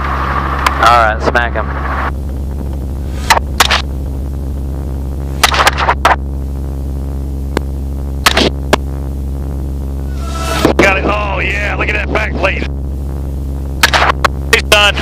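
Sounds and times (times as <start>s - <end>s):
helicopter engine and rotor drone: 0.0s - 6.6s, 7.2s - 15.0s
suppressed rifle shots: 13.8s - 14.2s.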